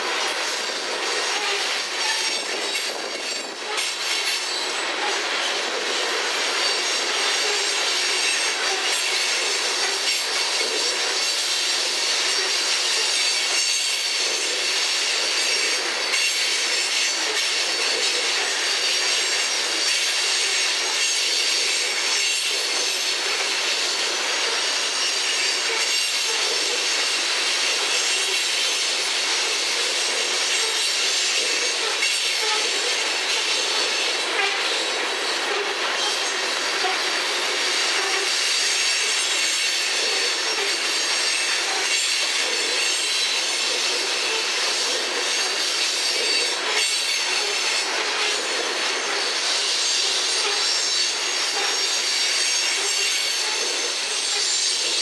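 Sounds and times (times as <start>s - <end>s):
train wheels on rails: 0.0s - 55.0s
high-pitched wheel squeal: 1.2s - 3.8s.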